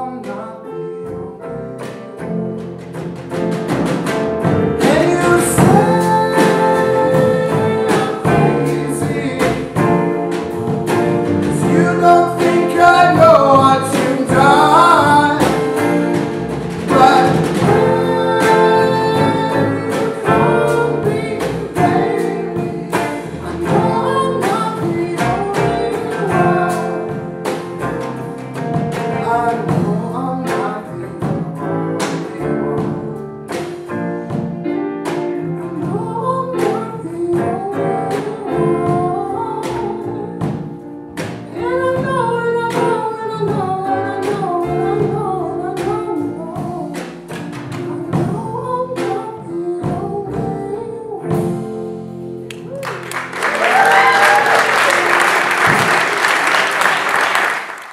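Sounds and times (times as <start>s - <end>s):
lead vocalist singing: 0.0s - 1.4s, 4.7s - 27.6s, 28.6s - 33.2s, 35.6s - 40.8s, 41.5s - 52.8s
upright double bass: 0.0s - 57.6s
drum kit: 0.0s - 57.9s.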